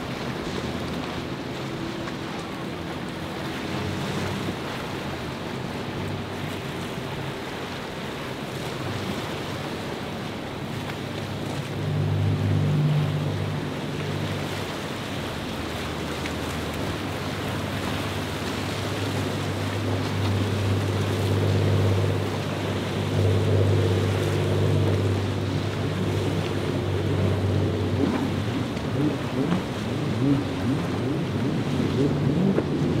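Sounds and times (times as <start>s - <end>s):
boat engines droning: 0.0s - 33.0s
bow wake splashing: 0.0s - 33.0s
wavering high engine note: 11.0s - 32.9s.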